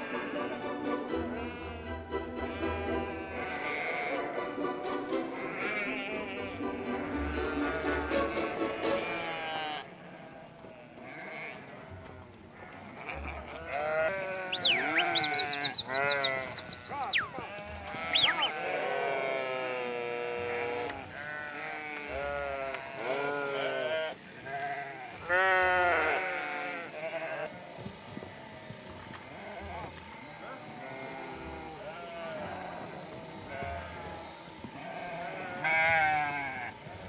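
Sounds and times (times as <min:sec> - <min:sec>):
sheep bleating: 0:00.0 - 0:00.6, 0:01.2 - 0:04.4, 0:05.2 - 0:37.0.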